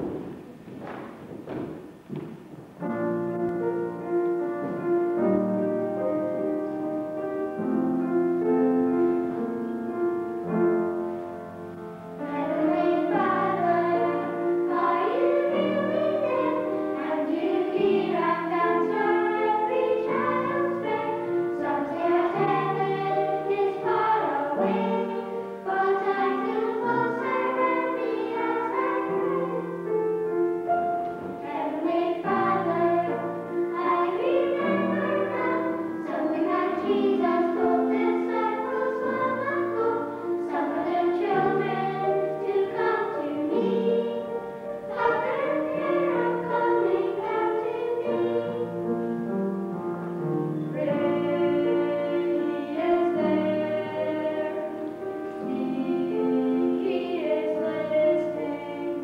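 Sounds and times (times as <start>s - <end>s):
upright piano playing: 0.0s - 59.0s
children singing: 12.2s - 30.2s, 30.9s - 49.2s, 50.2s - 59.0s.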